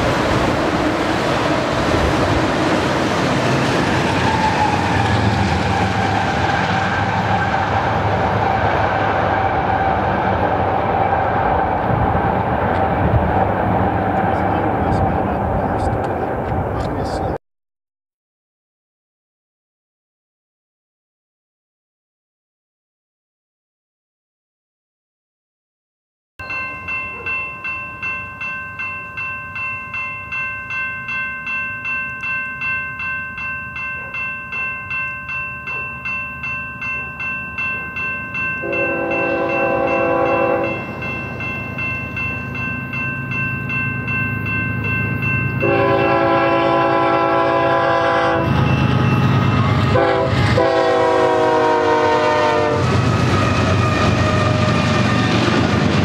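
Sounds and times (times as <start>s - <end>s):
crossing warning bells ringing: 0.0s - 17.4s, 26.4s - 56.0s
train rumble: 0.0s - 17.4s, 26.5s - 56.0s
train horn blasts: 38.6s - 40.9s, 45.6s - 55.1s.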